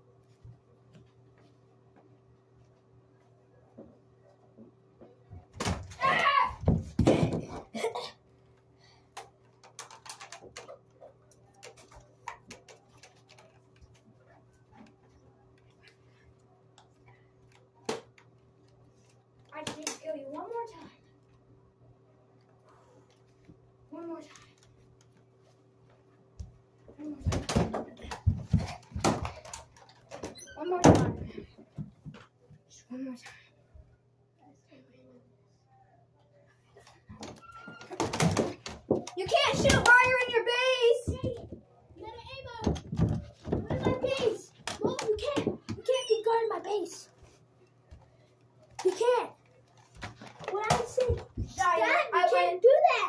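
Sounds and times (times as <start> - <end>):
knocks and thumps: 42.3 - 45.9.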